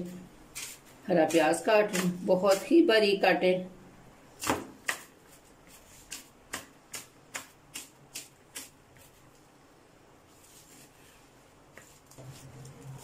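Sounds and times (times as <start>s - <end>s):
knife chopping on plastic board: 0.6s - 2.8s, 4.4s - 5.1s, 6.1s - 9.1s.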